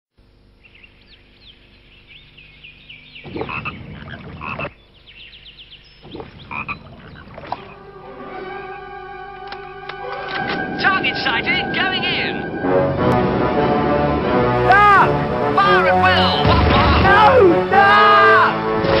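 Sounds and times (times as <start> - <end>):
high chirping birdsong: 0.3 - 10.2
loud rough pulsing calls: 0.5 - 7.9.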